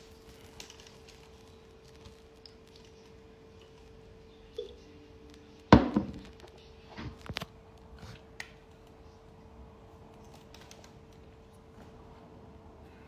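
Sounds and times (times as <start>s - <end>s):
plastic bottle set down: 5.8s - 6.3s.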